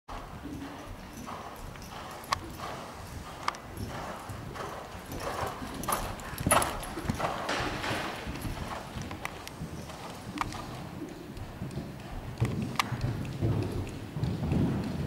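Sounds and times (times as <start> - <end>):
horse hoofbeats on soft ground: 0.1 - 15.0
sharp clicks: 5.8 - 14.6.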